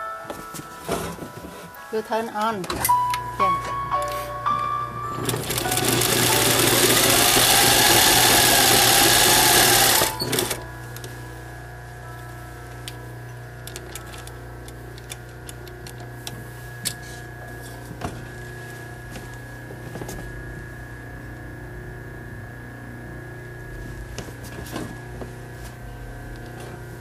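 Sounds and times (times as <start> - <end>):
sewing machine motor humming: 5.2 - 10.6.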